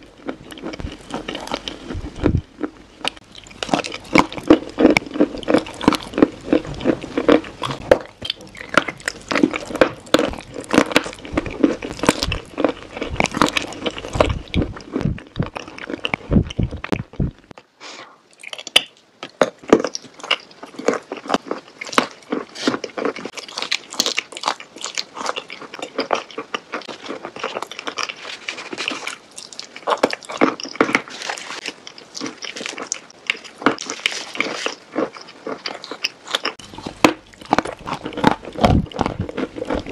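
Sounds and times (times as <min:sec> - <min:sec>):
crunching and chewing: 0:00.0 - 0:17.6, 0:18.3 - 0:39.9
low rumble: 0:00.8 - 0:02.6, 0:10.3 - 0:15.6, 0:16.2 - 0:17.5.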